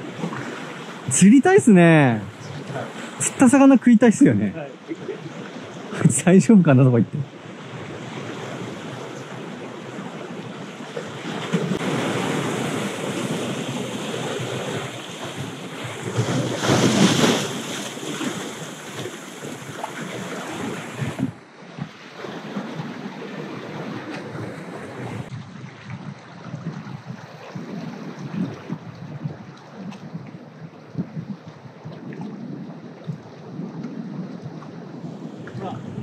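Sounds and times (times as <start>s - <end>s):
surf breaking on rocky shore: 11.4s - 21.4s
wind buffeting microphone: 22.5s - 36.0s.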